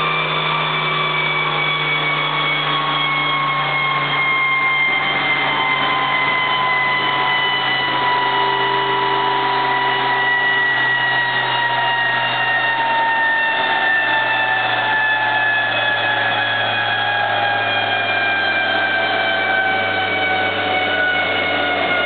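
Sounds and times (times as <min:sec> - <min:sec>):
dyno rollers rushing with whine: 0:00.0 - 0:22.0.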